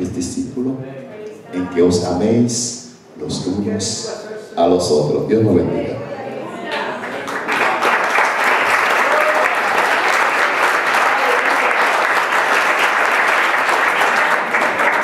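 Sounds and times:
congregation applauding: 6.7s - 15.0s.

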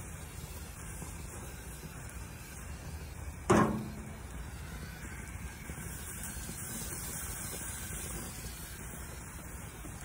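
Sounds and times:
steaks sizzling on grill: 0.0s - 10.0s
sharp knock on grill: 3.5s - 4.2s.

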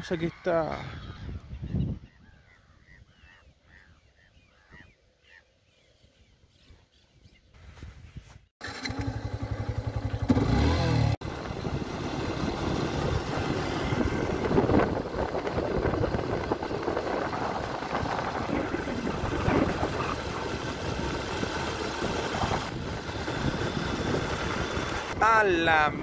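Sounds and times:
motorcycle engine idling and revving: 8.6s - 25.2s.

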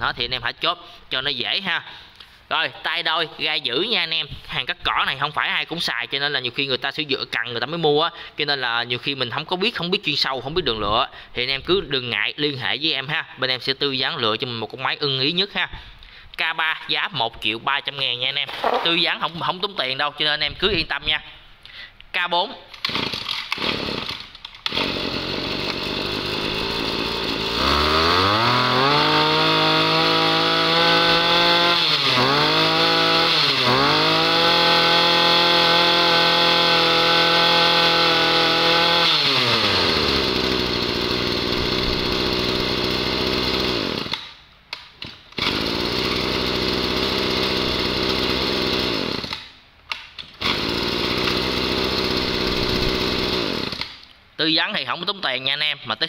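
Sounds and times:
brush cutter engine revving: 18.5s - 19.0s, 22.8s - 44.4s, 45.1s - 49.5s, 50.2s - 54.0s.

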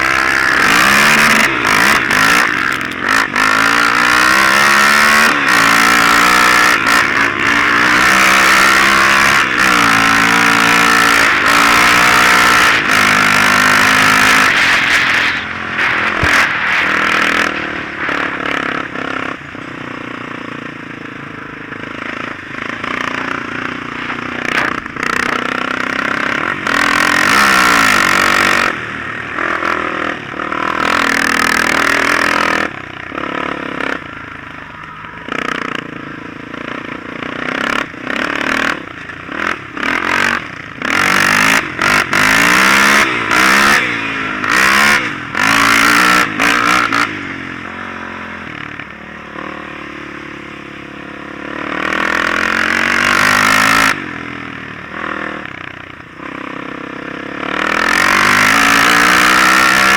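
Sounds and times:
engine revving hard: 0.0s - 19.4s, 24.4s - 28.8s, 37.4s - 47.2s, 51.6s - 54.1s, 57.4s - 59.9s
rushing noise bursts: 11.4s - 19.5s.

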